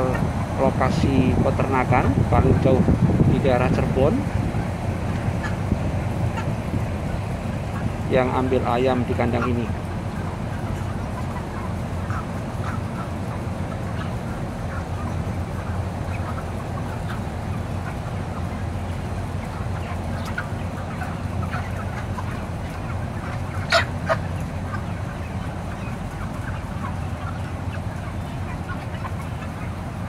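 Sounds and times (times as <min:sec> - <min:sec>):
chickens calling: 0:00.0 - 0:30.0
steady low hum: 0:00.0 - 0:30.0
chicken squawks: 0:03.7 - 0:30.0.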